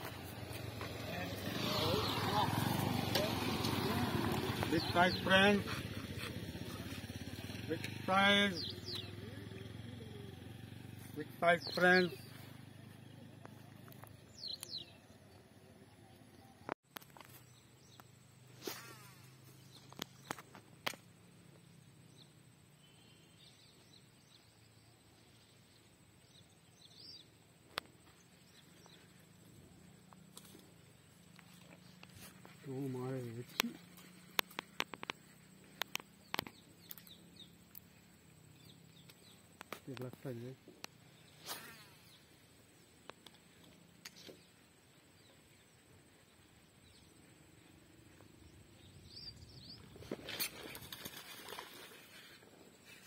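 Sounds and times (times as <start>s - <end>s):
faint bird chirps: 21.6s - 27.4s.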